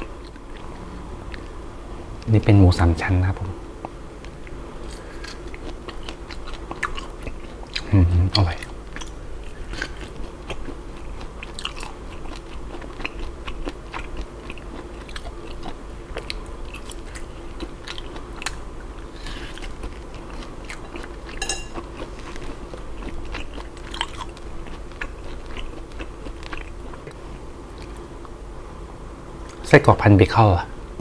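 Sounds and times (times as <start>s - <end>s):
wet chewing and crunching: 4.9s - 28.3s.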